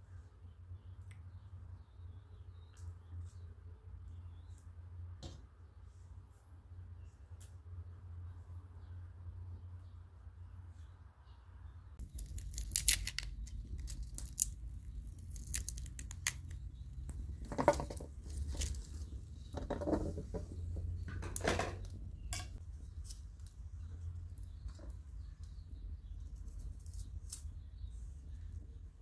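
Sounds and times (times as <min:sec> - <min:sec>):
knife peeling garlic skins: 0:12.0 - 0:17.3, 0:26.2 - 0:27.9.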